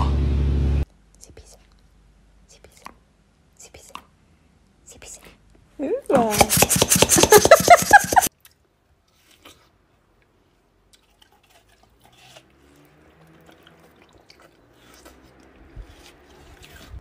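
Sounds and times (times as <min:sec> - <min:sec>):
dog chewing wetly: 0:10.9 - 0:17.0.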